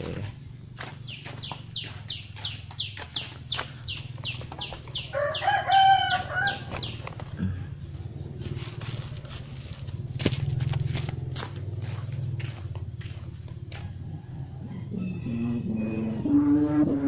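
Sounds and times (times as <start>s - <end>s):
bird chirping rapidly: 1.0s - 7.1s
rooster crowing: 4.9s - 7.0s, 13.7s - 17.0s.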